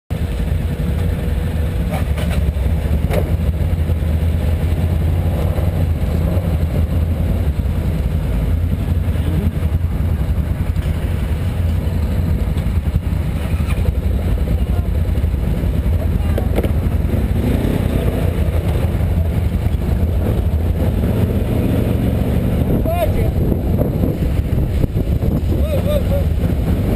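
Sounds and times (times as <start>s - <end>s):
atv engine idling: 0.1s - 26.9s.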